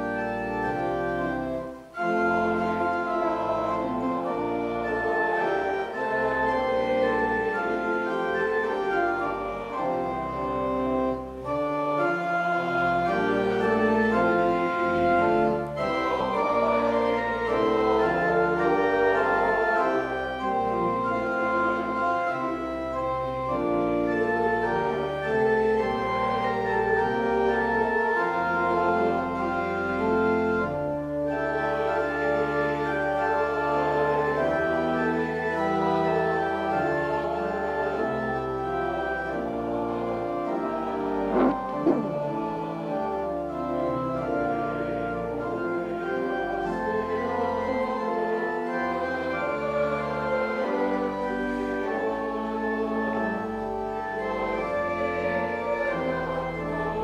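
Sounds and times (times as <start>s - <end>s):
church organ chords: 0.0s - 57.0s.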